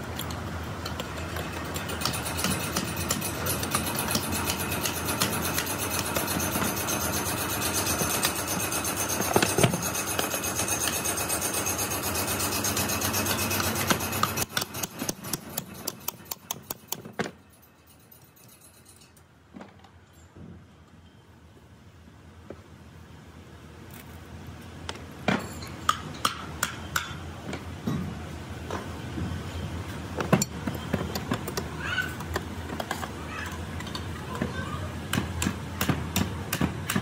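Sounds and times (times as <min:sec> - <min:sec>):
metal rasping with fast ticking: 0:01.0 - 0:19.0.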